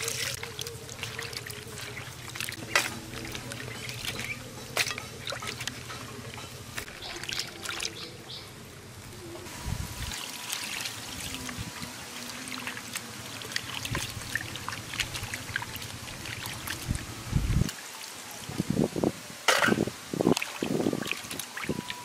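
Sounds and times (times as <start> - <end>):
wet rubbing of fish: 0.0 - 8.1
small splashes: 0.0 - 8.5, 9.9 - 18.8, 19.5 - 22.0
water sloshing and trickling: 0.0 - 22.0.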